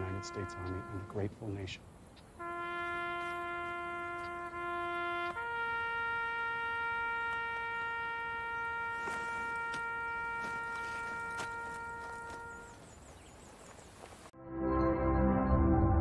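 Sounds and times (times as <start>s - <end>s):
wind instrument holding notes: 0.0s - 1.8s, 2.4s - 12.9s.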